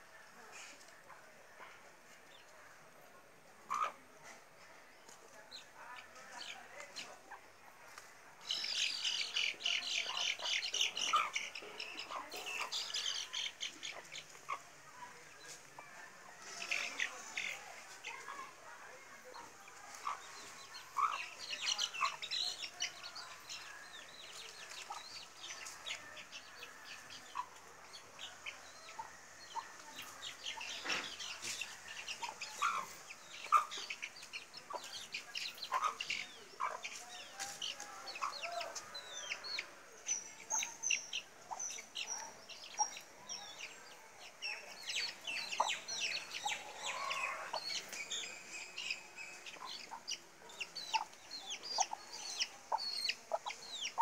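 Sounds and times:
chick peeping: 0:03.6 - 0:04.0, 0:05.3 - 0:14.6, 0:16.4 - 0:54.0
hen clucking: 0:09.2 - 0:14.6, 0:20.0 - 0:22.8, 0:30.6 - 0:37.0.

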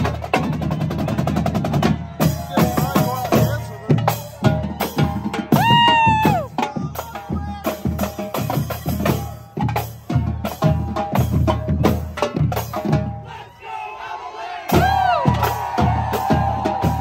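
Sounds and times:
bass drum beats: 0:00.0 - 0:13.2, 0:14.7 - 0:17.0
snare drums: 0:00.0 - 0:13.3, 0:14.7 - 0:17.0
tenor drums: 0:00.0 - 0:13.3, 0:14.7 - 0:17.0.

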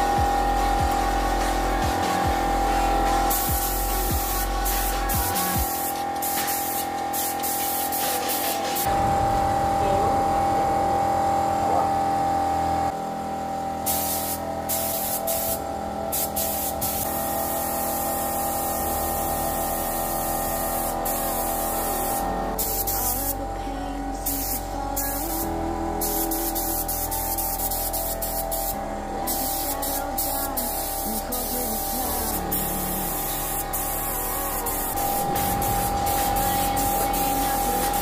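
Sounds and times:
background music: 0:00.0 - 0:07.9, 0:22.2 - 0:38.0
paint spray gun hissing: 0:00.0 - 0:09.0, 0:13.9 - 0:23.5, 0:24.2 - 0:38.0.

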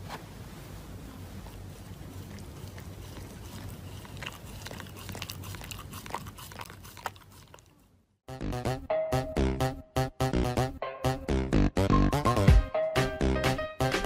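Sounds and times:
dog chewing paper mask: 0:01.4 - 0:07.8.

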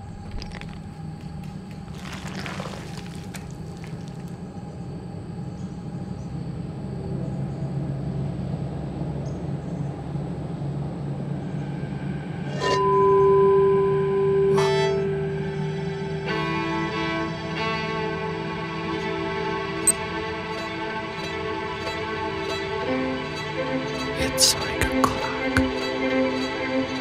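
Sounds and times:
low rumbling drone: 0:00.0 - 0:04.8.

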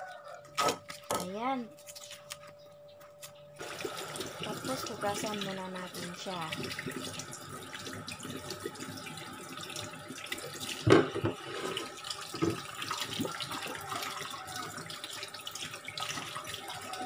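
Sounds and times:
tap water running into sink: 0:03.6 - 0:17.0.

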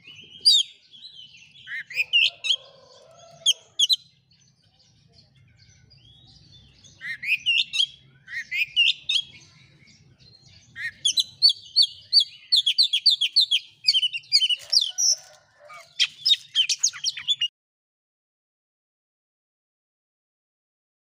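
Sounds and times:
bird singing whistled phrases: 0:07.0 - 0:09.5.

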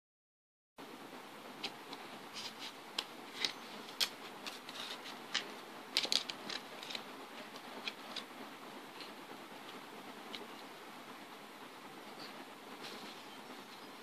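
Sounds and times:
steady hiss: 0:00.8 - 0:14.0
playing cards clicking and rustling: 0:01.6 - 0:08.3.

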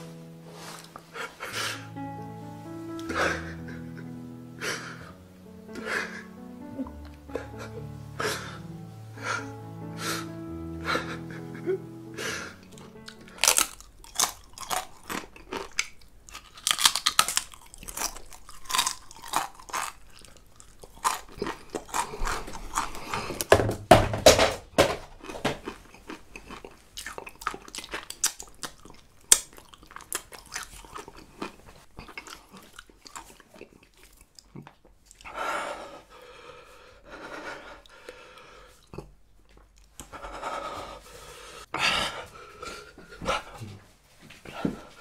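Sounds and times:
person crunching a chip: 0:12.6 - 0:23.5, 0:25.6 - 0:35.3.

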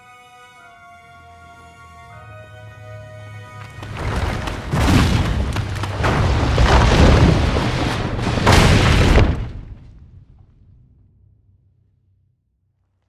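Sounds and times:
cave rumbling: 0:03.6 - 0:13.0
rock crashing down: 0:03.8 - 0:10.5.

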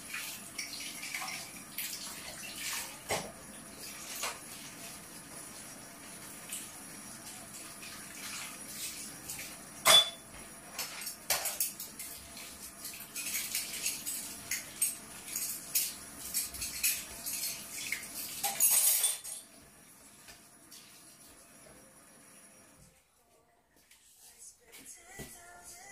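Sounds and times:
dishes and utensils clinking: 0:09.3 - 0:19.6.

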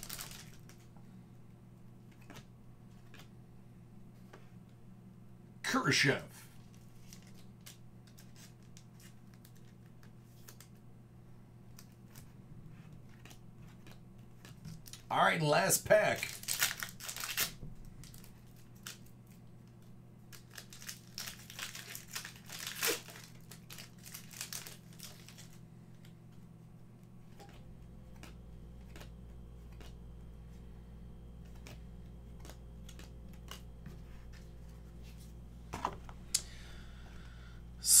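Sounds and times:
card pack wrapper crinkling: 0:00.0 - 0:00.9, 0:06.6 - 0:10.8, 0:16.1 - 0:26.1, 0:31.4 - 0:35.3
cards being shuffled: 0:02.0 - 0:03.3, 0:06.6 - 0:10.8, 0:16.2 - 0:26.4, 0:27.2 - 0:30.6, 0:31.4 - 0:36.3.

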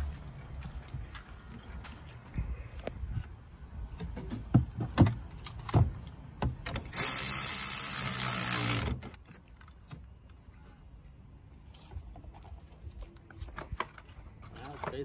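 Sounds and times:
cordless electric ratchet running: 0:06.9 - 0:09.0
clicks and knocks of handled parts: 0:11.7 - 0:15.0.

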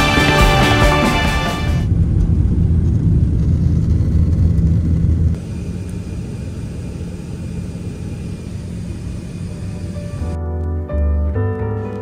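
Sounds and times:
cabin hum: 0:00.4 - 0:10.4
jet engine rumble: 0:01.5 - 0:10.4.

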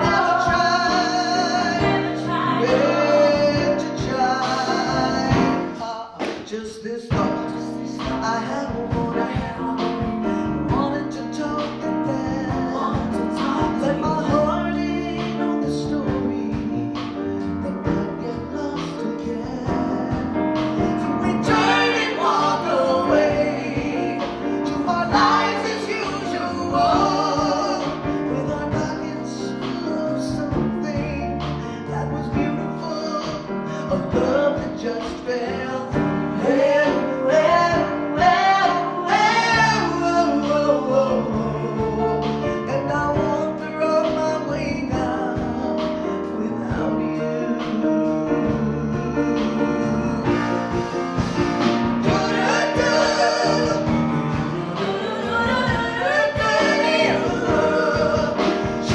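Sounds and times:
people singing: 0:00.0 - 0:17.0, 0:17.6 - 0:58.9
drums: 0:00.0 - 0:58.9
piano: 0:00.0 - 0:58.9
upright bass: 0:00.0 - 0:58.9
women singing in harmony: 0:01.5 - 0:03.6, 0:21.4 - 0:23.7, 0:52.1 - 0:58.9.

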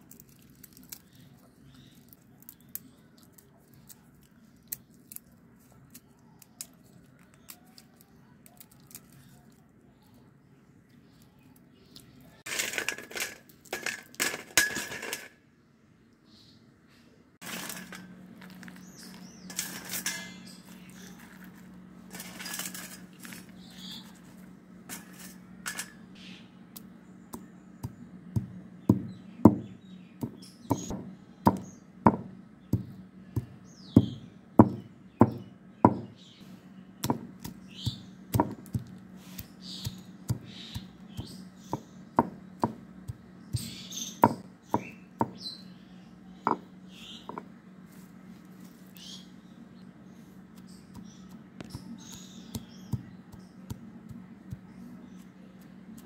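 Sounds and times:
seeds clicking and scraping: 0:00.0 - 0:15.3, 0:17.4 - 0:26.0, 0:36.4 - 0:44.1, 0:47.8 - 0:49.2, 0:50.1 - 0:56.0
steady low hum: 0:09.3 - 0:56.0
stone pestle knocking: 0:34.0 - 0:36.1.

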